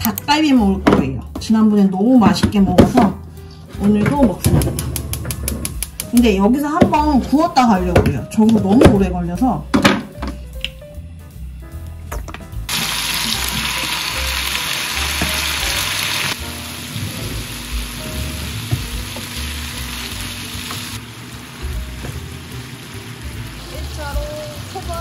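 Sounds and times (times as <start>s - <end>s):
food sizzling on griddle: 12.7s - 25.0s.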